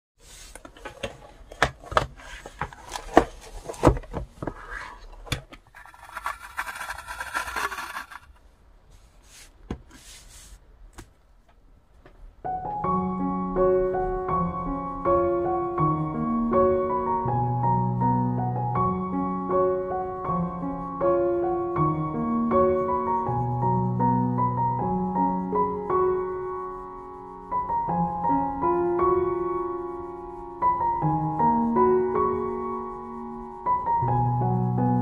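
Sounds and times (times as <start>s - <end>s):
soft piano music: 12.4s - 35.0s.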